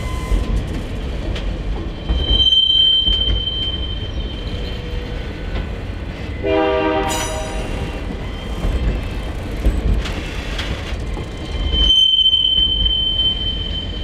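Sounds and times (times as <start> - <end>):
train wheels rumbling on rail: 0.0 - 14.0
high wheel squeal: 1.9 - 6.4, 7.1 - 9.3, 11.3 - 14.0
multi-note train horn: 6.4 - 7.8.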